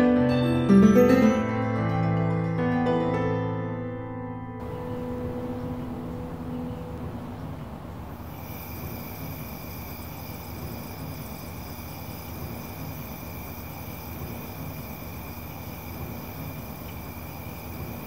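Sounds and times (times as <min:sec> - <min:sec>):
night insects chirring: 0:04.6 - 0:18.0.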